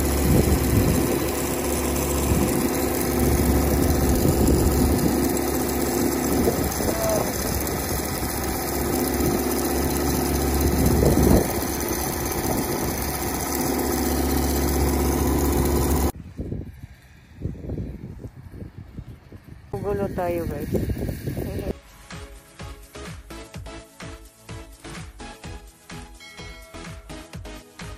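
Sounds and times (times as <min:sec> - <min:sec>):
diesel engine running: 0:00.0 - 0:16.1.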